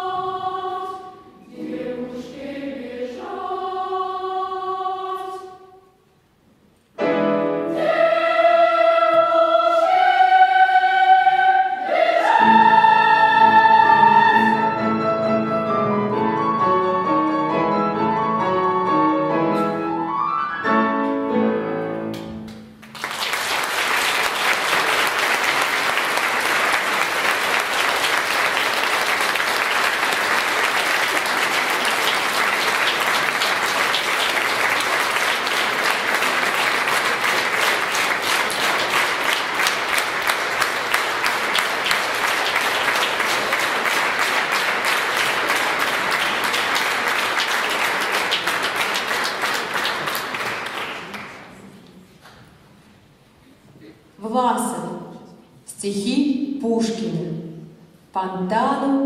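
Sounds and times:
audience applauding: 22.8 - 51.8.

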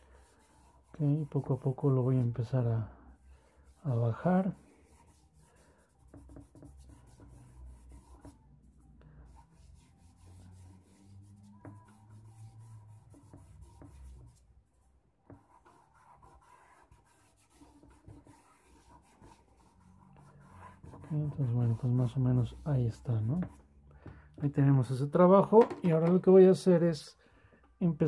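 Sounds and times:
fingers rubbing charcoal on paper: 0.2 - 2.4, 3.7 - 8.4, 9.3 - 14.4, 15.3 - 23.6.

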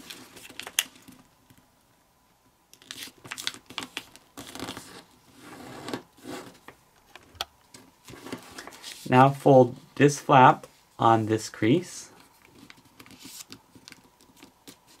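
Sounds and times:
paper rustling and crinkling: 0.0 - 1.2, 2.8 - 6.8, 7.7 - 9.1, 12.1 - 15.0.

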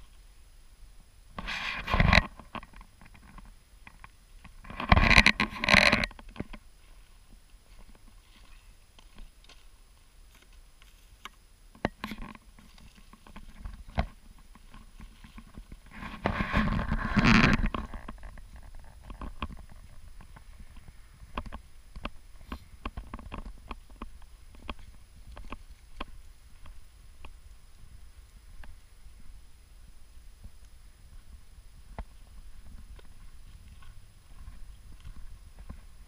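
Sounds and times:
rushing rustling noise: 12.6 - 21.4
footsteps on snowy sidewalk: 31.1 - 36.0.

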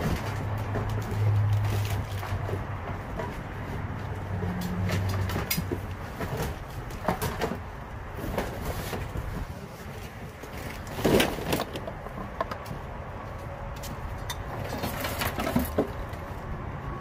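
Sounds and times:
items knocking and thumping: 0.0 - 9.6, 10.5 - 12.8, 14.4 - 16.1.

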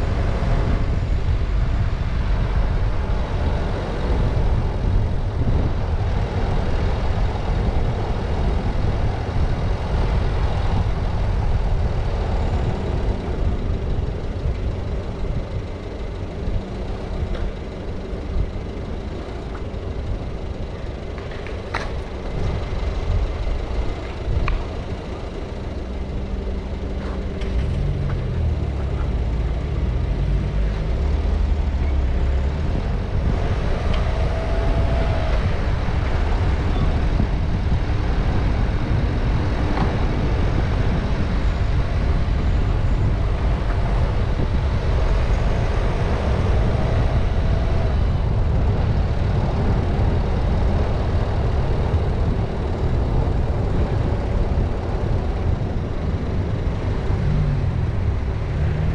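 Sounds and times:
car engine and tyre noise: 0.0 - 58.9.

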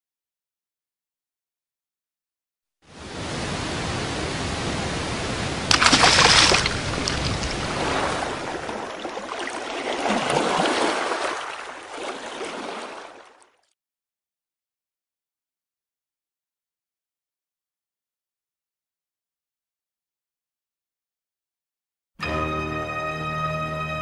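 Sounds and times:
rushing water: 2.8 - 13.7
water splash: 3.0 - 13.7.

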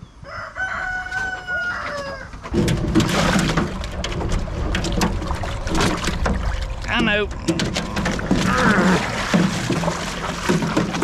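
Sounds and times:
rooster crowing: 0.2 - 2.3
water splashing in metal washtub: 2.5 - 11.0.

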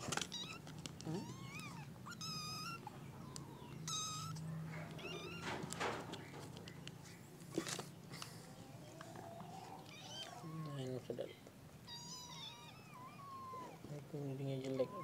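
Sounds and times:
kitten meowing: 0.2 - 2.9, 3.8 - 5.6, 9.8 - 10.8, 11.8 - 13.9, 14.6 - 15.0
rustling: 3.9 - 8.4.

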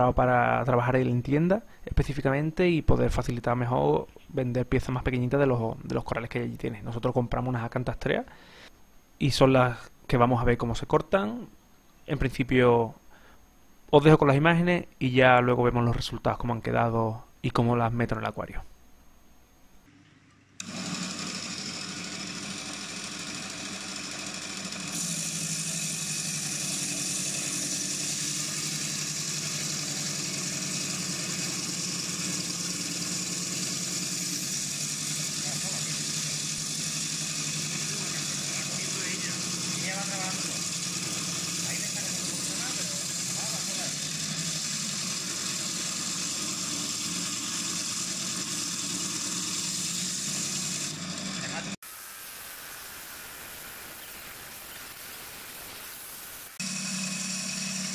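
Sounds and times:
bandsaw running: 20.5 - 51.8, 56.5 - 57.9
blade grinding hiss: 24.8 - 50.9.

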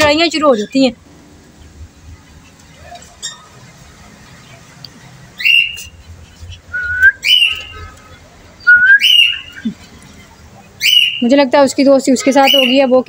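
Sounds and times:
parrots screeching: 5.4 - 5.9, 7.2 - 8.0, 9.0 - 9.6, 10.8 - 11.3, 12.4 - 12.9.

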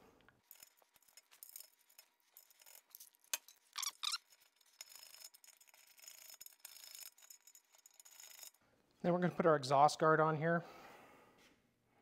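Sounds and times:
short squeaks: 3.6 - 7.0.

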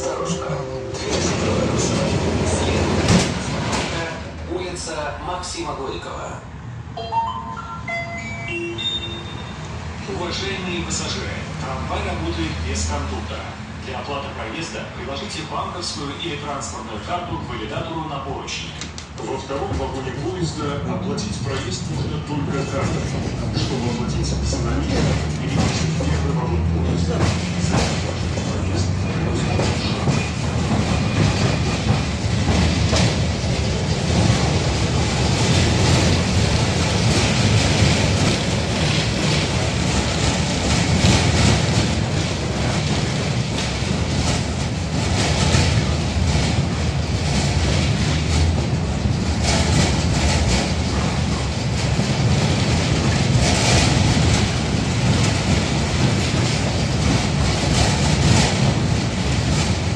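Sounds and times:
tram wheels on rails: 0.0 - 59.9
clacks and rattles: 1.1 - 4.2, 21.1 - 59.9.

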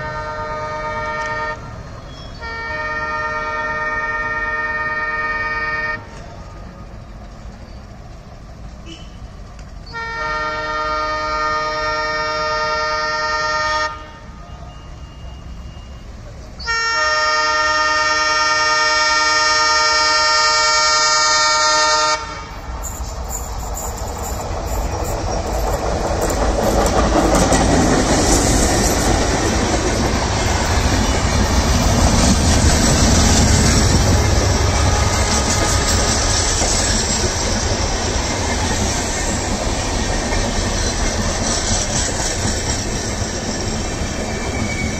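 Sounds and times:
locomotive horn blasts: 0.0 - 1.8, 2.4 - 6.2, 8.8 - 9.2, 9.9 - 22.7
train wheels clattering on rails: 6.0 - 10.0, 22.5 - 44.9
locomotive engine noise: 17.6 - 44.9.

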